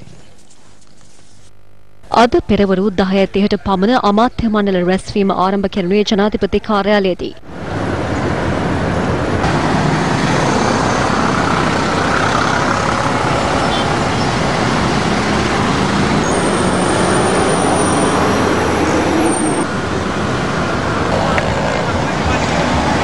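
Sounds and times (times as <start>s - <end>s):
cars driving past: 7.5s - 23.0s.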